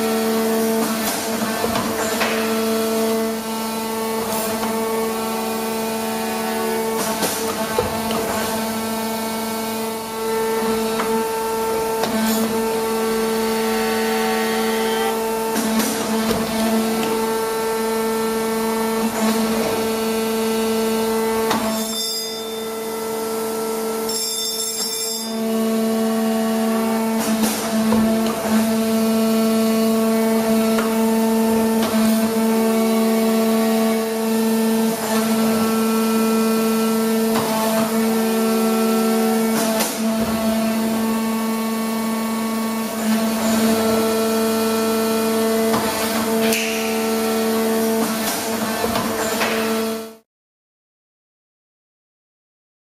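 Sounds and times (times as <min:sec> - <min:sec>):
hydraulic power unit humming: 0:00.0 - 0:21.6.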